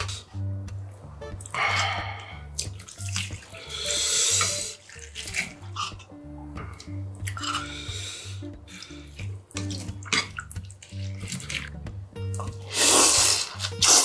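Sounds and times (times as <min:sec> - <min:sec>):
background music with bass line: 0:00.0 - 0:14.0
broth sloshing in a bowl: 0:02.6 - 0:07.7, 0:08.6 - 0:11.8.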